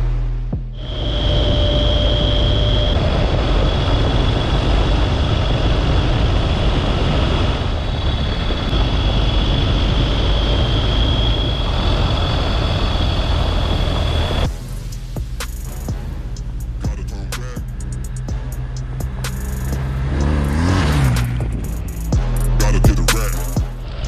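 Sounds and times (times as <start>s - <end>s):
high whine: 0.0s - 24.0s
motorcycle engine: 0.0s - 24.0s
wind noise: 0.7s - 16.3s.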